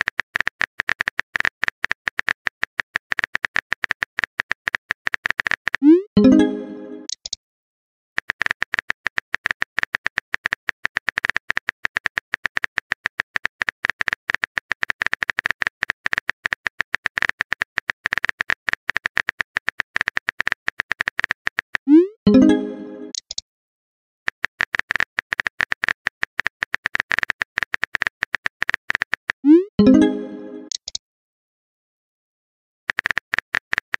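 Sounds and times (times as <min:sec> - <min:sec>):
phone keyboard typing clicks: 0:00.0 - 0:05.9, 0:07.0 - 0:07.4, 0:08.2 - 0:21.9, 0:23.0 - 0:23.4, 0:24.3 - 0:31.0, 0:32.9 - 0:33.9
message chime: 0:05.8 - 0:07.1, 0:21.9 - 0:23.2, 0:29.5 - 0:30.7.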